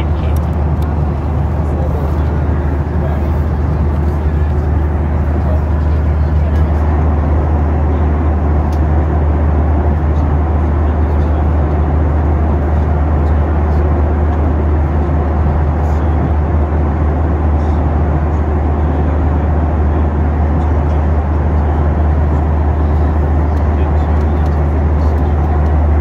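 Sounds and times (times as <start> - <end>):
jet engine and airflow rumble: 0.0 - 26.0.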